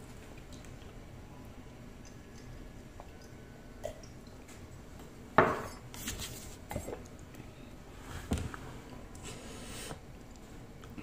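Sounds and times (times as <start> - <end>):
tableware clattering on wooden table: 5.4 - 5.8.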